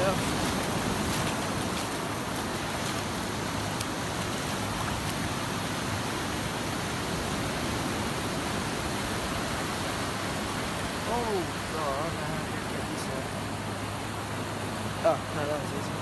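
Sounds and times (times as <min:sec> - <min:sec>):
waves breaking on a beach: 0:00.0 - 0:16.0.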